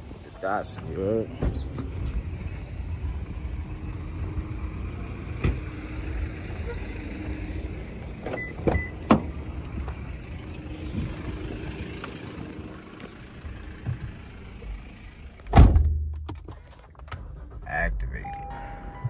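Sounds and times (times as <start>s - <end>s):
outside noise: 0.0s - 19.0s
car door shutting thud: 15.5s - 16.1s.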